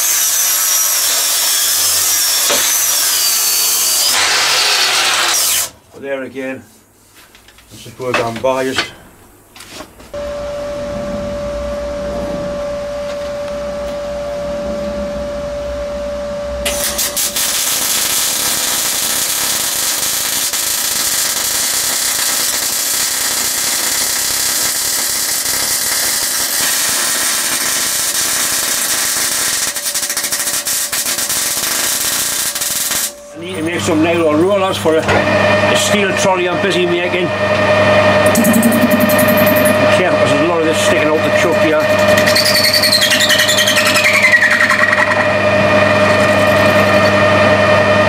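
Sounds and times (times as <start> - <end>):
steady hum with held tone: 8.0 - 17.6, 32.3 - 48.0
welding arc crackling and hissing: 16.7 - 33.2.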